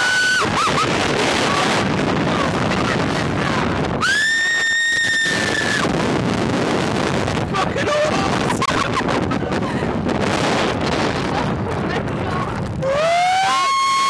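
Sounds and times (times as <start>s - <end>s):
wind rushing over microphone: 0.0s - 14.0s
person screaming: 12.8s - 14.0s.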